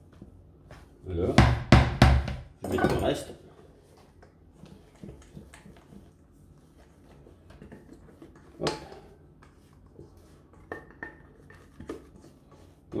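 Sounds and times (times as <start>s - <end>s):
knock on bowl: 1.4s - 3.0s.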